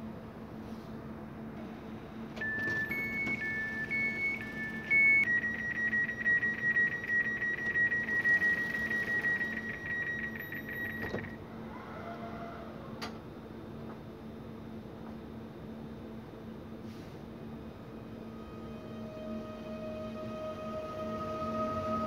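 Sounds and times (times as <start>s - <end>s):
two-note door warning beep: 2.4s - 11.4s
rapid single-note beeping: 2.6s - 11.4s.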